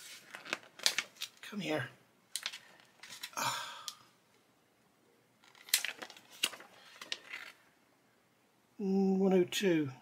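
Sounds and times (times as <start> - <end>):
paper rustling and crinkling: 0.0 - 1.5, 2.3 - 3.4, 5.4 - 7.6.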